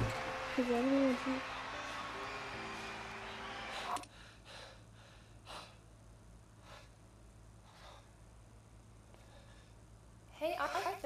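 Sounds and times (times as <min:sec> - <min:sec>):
man breathing hard: 0:03.7 - 0:05.9, 0:06.6 - 0:07.0, 0:07.6 - 0:08.2, 0:09.1 - 0:09.9.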